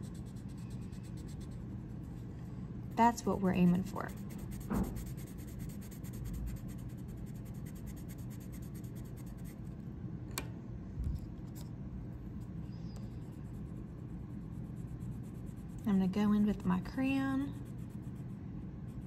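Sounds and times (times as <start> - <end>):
pencil scratching on paper: 0.0 - 2.2, 2.9 - 9.6, 13.2 - 15.9, 17.4 - 19.0.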